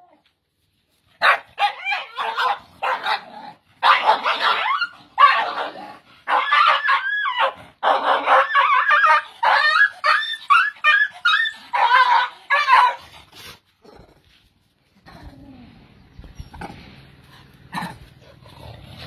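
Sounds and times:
dog squealing and yelping: 1.2s - 3.2s, 3.8s - 13.1s.

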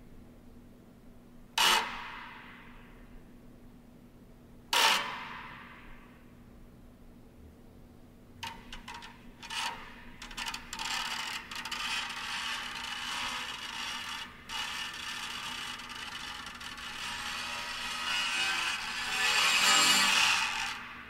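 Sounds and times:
ratchet-like crackling and grinding: 8.4s - 20.9s.

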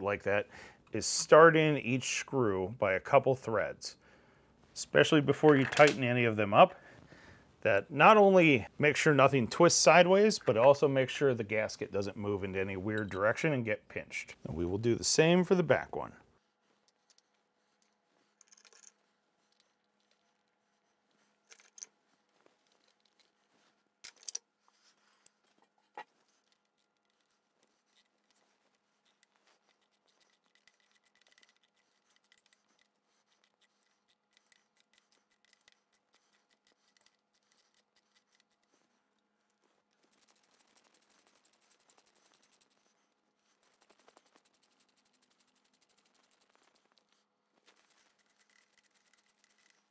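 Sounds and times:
screws clicking and scraping: 16.8s - 20.6s, 21.4s - 23.4s, 24.0s - 24.5s, 25.2s - 49.9s.

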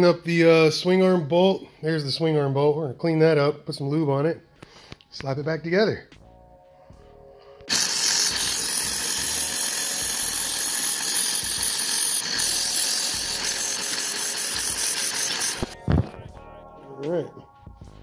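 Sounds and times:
loud steady hiss with whine: 7.7s - 15.8s.

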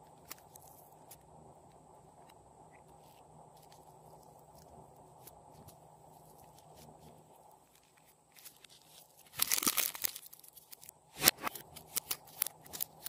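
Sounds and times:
soft handling sounds: 0.0s - 13.0s
plastic packet crinkling: 7.7s - 10.9s, 11.6s - 13.0s.

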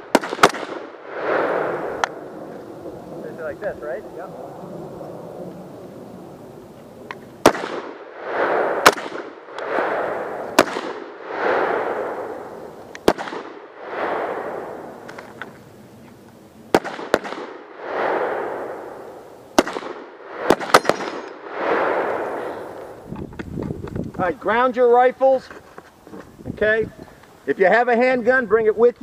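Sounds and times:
rifle shots: 0.0s - 2.3s, 7.4s - 15.1s, 16.7s - 22.8s.

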